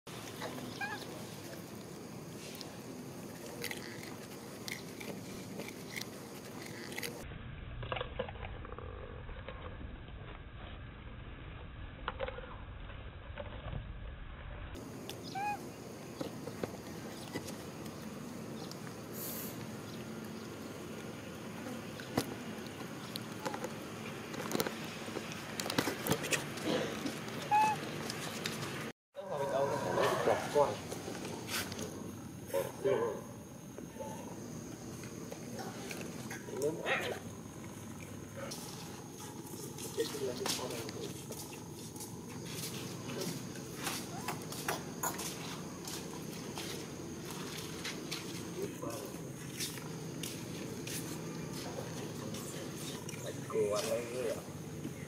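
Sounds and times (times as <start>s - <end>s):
outdoor background hum: 0.1s - 55.0s
short high squeak: 27.4s - 27.8s.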